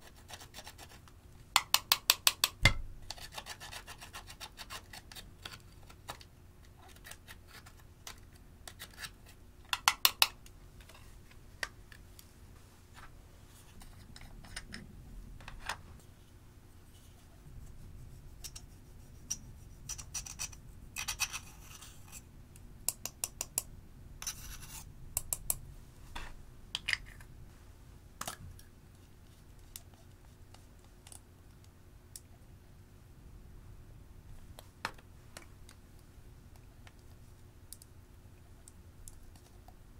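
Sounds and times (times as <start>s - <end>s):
metal tool scraping powder: 19.2s - 22.3s, 24.2s - 24.9s.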